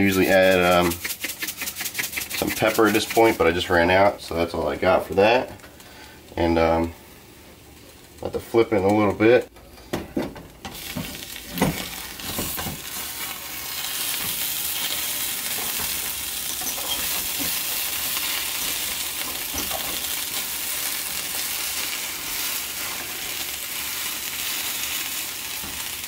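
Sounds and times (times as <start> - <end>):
spatula scraping and knocking: 0.0 - 3.6
omelet sizzling in a pan: 10.6 - 26.0.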